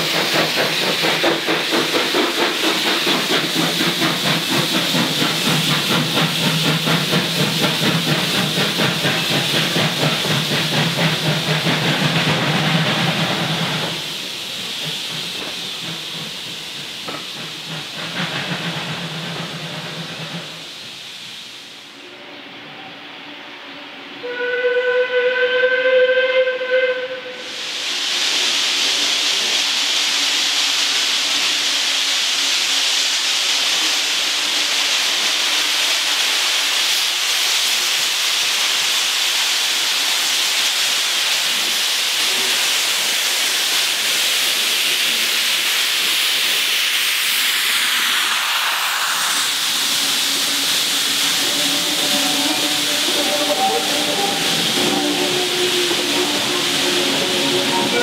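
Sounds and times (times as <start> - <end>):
steam hissing: 0.0 - 58.0
train running past: 0.0 - 58.0
steam locomotive whistle: 22.0 - 27.6, 51.3 - 58.0.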